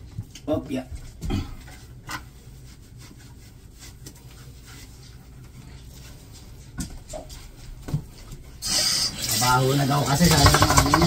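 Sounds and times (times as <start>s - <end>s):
hands rubbing wet dog's coat: 1.0s - 8.5s.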